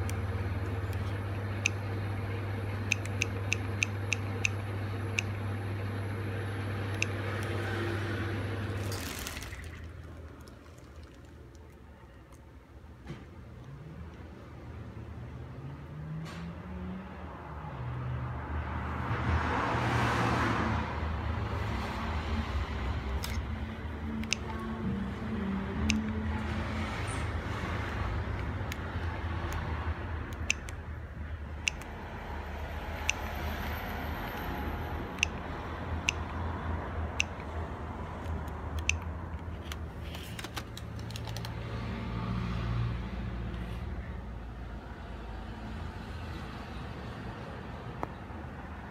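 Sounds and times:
steady low hum: 0.0 - 12.9
phone keypad clicks: 2.9 - 4.6, 30.3 - 30.8
vehicle passing: 6.1 - 11.7, 13.7 - 48.9
sharp click: 30.3 - 30.8.

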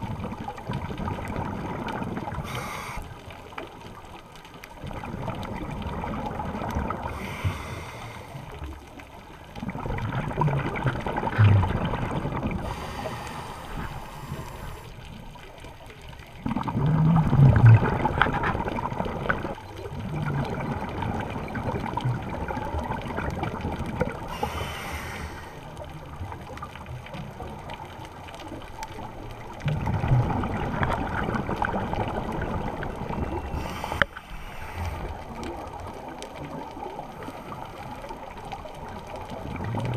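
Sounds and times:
bubbling exhale rush: 0.9 - 3.3, 5.9 - 8.6, 9.7 - 14.9, 24.2 - 25.7, 29.7 - 35.8
regulator inhale hiss: 2.4 - 3.3, 7.1 - 8.6, 12.6 - 14.9, 24.3 - 25.7, 33.5 - 35.2.

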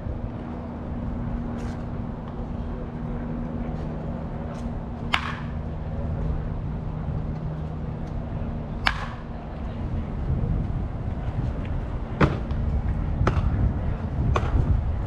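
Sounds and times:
low hum: 0.0 - 15.0
bat cracking against ball: 5.1 - 5.7, 8.8 - 9.3, 12.2 - 12.6.

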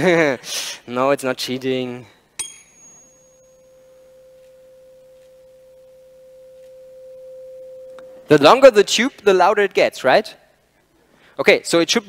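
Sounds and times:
tuning fork pure tone: 2.4 - 8.8.

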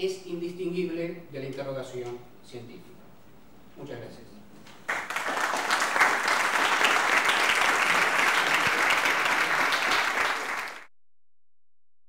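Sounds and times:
audience applauding: 4.9 - 10.9.

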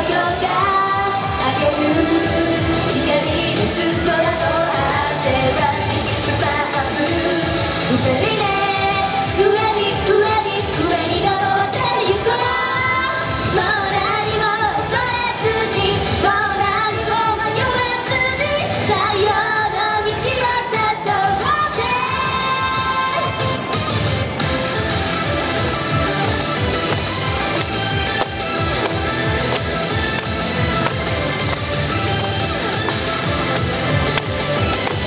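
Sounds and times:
woman singing into microphone: 0.0 - 23.4
pop backing music: 0.0 - 35.0.

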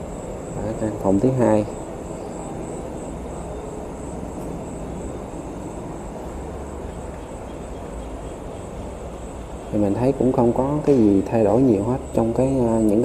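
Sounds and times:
distant highway traffic rumble: 0.0 - 13.0
faint pulsing insect trill: 0.0 - 13.0.

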